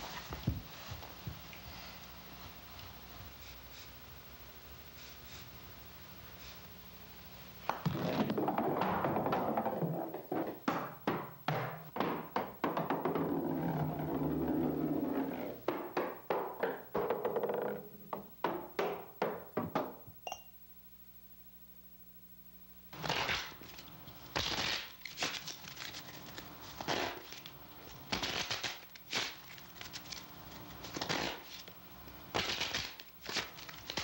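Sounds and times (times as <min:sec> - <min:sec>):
ball thudding on stairs: 0:07.6 - 0:20.2
ball rolling down stairs: 0:07.6 - 0:20.3
ball clinking against glass: 0:20.2 - 0:20.5.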